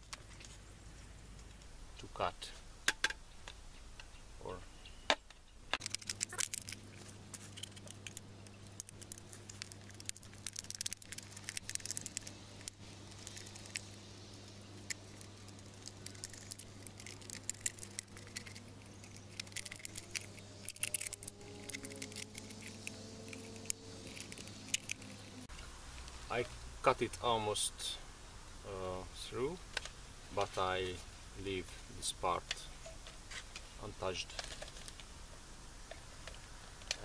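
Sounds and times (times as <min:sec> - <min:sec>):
low hum: 0:05.7 - 0:27.2.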